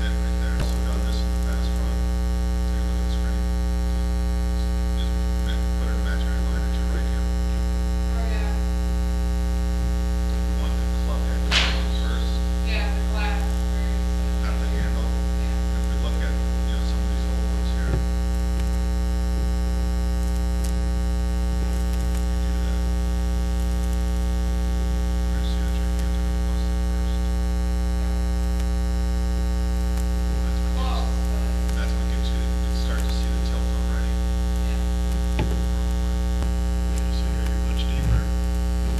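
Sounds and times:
electrical mains hum: 0.0 - 38.9
sharp click: 11.5 - 11.9.

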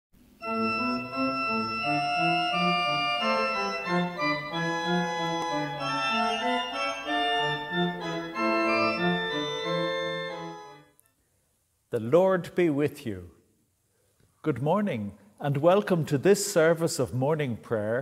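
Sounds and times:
organ playing sustained chords: 0.4 - 10.9.

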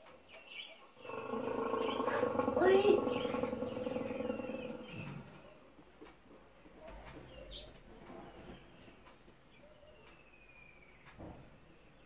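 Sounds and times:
bird chirps: 0.3 - 5.6
bird cooing: 1.0 - 5.5.

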